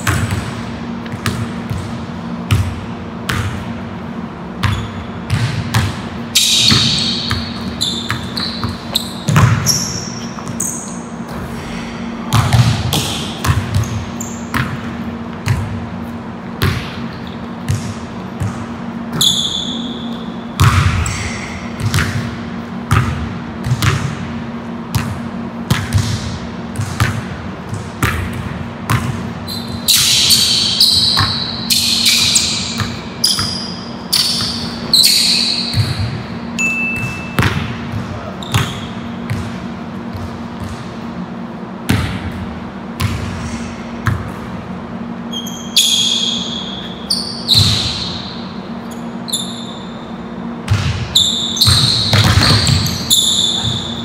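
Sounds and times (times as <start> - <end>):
steady low hum: 0.0 - 54.0
sneaker squeaks: 4.4 - 11.6, 12.3 - 24.1, 27.7 - 40.9, 45.2 - 54.0
basketball dribbling on wood floor: 4.6 - 6.0, 6.6 - 10.6, 15.4 - 15.8, 16.6 - 16.9, 51.6 - 53.9.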